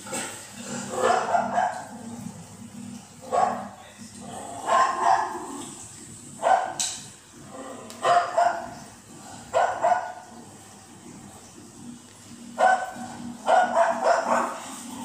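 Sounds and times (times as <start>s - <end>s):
dog barking: 0.9s - 2.0s, 3.3s - 3.8s, 4.6s - 5.4s, 6.4s - 6.8s, 8.0s - 8.8s, 9.5s - 10.3s, 12.6s - 14.7s.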